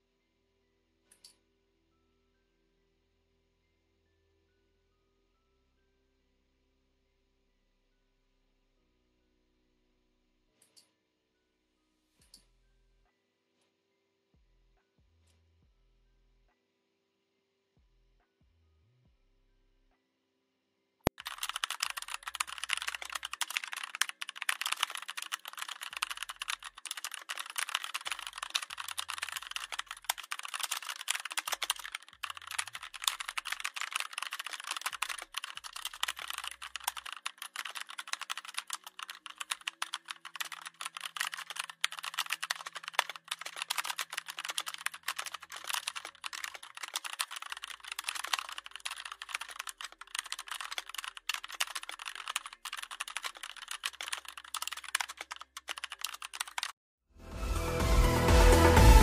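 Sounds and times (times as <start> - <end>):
computer keyboard typing: 21.1 - 56.8.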